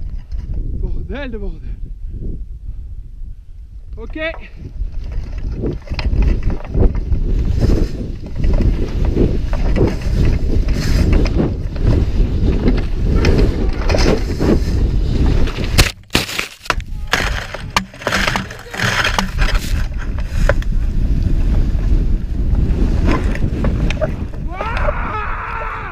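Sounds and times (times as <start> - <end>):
wind rush on microphone: 0.0 - 25.9
skis slicing through powder snow: 7.4 - 24.3.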